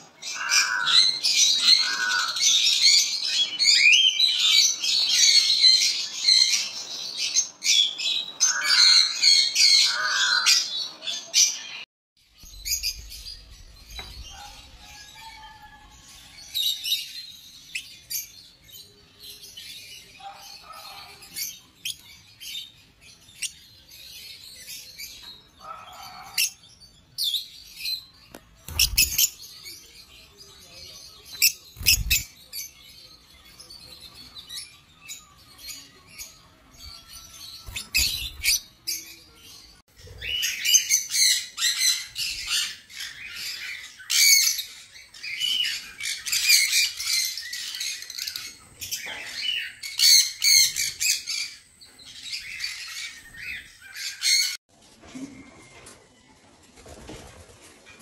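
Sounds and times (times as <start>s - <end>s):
parrots squawking and chirping: 0.1s - 11.8s, 19.4s - 29.8s, 31.0s - 54.6s.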